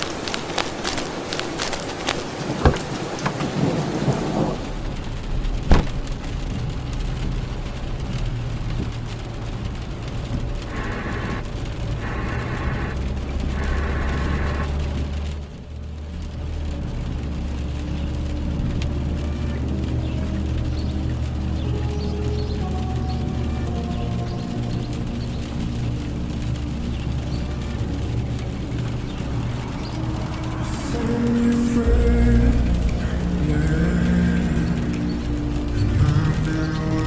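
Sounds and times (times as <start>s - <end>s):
low rolling thunder rumble: 0.0s - 37.0s
rain falling: 0.0s - 37.0s
thunder crack: 2.0s - 6.8s.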